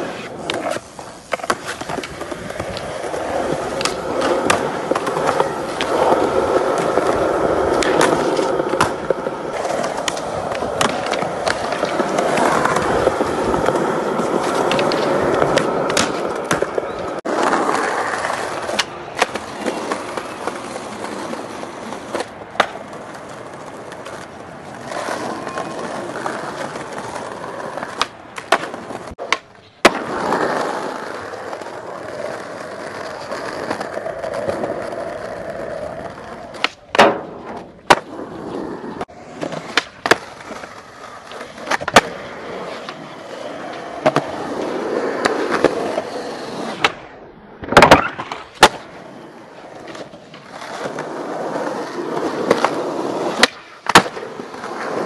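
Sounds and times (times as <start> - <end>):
skateboard clacking on ground: 0.0 - 55.0
skateboard wheels rolling on concrete: 0.0 - 55.0.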